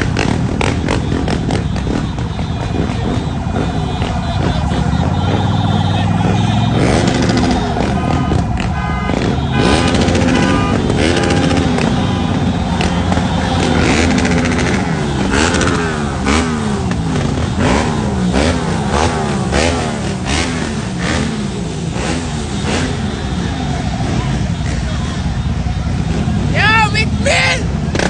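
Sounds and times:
motorbike engines revving: 0:00.0 - 0:28.0.

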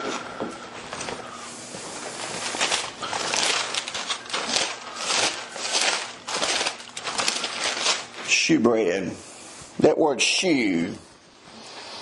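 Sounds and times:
thin pages rustling: 0:01.9 - 0:08.3.

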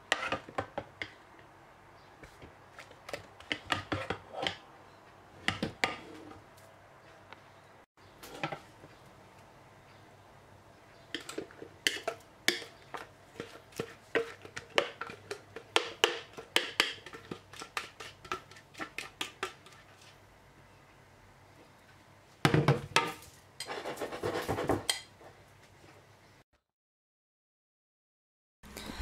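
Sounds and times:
spatula scraping metal bowl: 0:00.1 - 0:00.6, 0:02.8 - 0:04.6, 0:11.1 - 0:20.2, 0:23.6 - 0:25.0.

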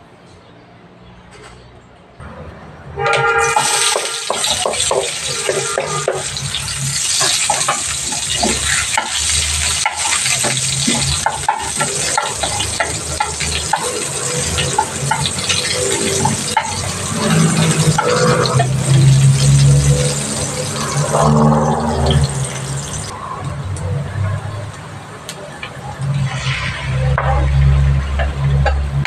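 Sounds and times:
onions sizzling in oil: 0:03.5 - 0:23.1.

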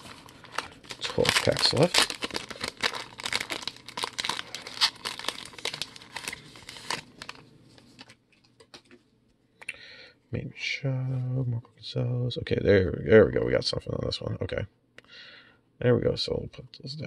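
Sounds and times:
foil wrapper crinkling: 0:00.0 - 0:08.2.

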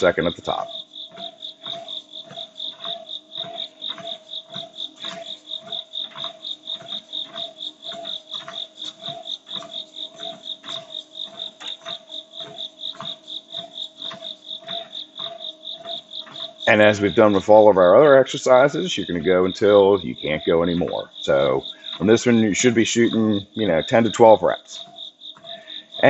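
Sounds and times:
music with a steady beat: 0:00.0 - 0:16.8.

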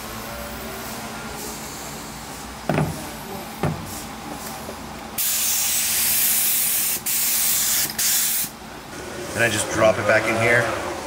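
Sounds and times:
knocks: 0:02.7 - 0:03.9
spray gun hissing: 0:05.2 - 0:08.5
spray gun puffs: 0:05.2 - 0:08.5.

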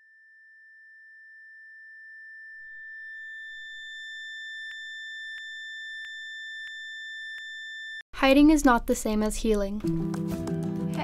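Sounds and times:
high-pitched ringing tone: 0:00.0 - 0:08.0.

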